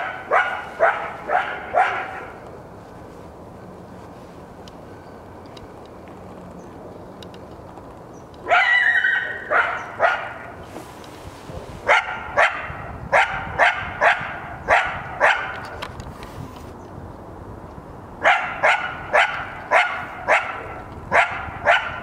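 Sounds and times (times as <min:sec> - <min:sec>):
coyote barking: 0:00.0 - 0:02.4, 0:08.4 - 0:10.6, 0:11.8 - 0:15.6, 0:18.2 - 0:22.0.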